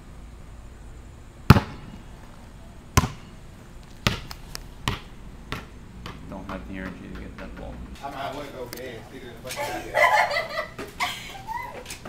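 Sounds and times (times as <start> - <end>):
basketball bouncing on concrete: 1.5 - 2.0, 3.0 - 3.4, 4.0 - 8.0.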